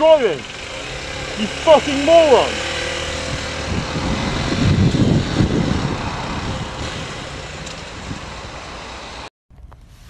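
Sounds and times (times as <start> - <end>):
motorcycle engine running: 0.0 - 9.2
low rumble: 2.7 - 8.5
wind rush on microphone: 2.9 - 10.0.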